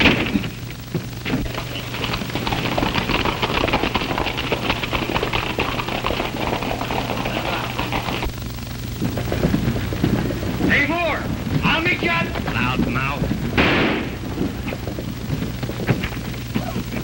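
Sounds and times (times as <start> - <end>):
film soundtrack hum: 0.0 - 17.0
horse hooves on hard ground: 0.0 - 17.0.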